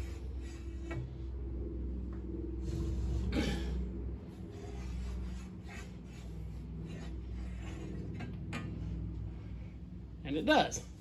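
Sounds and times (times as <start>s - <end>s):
steady low hum: 0.0s - 11.0s
metal scraping on metal: 4.5s - 9.0s.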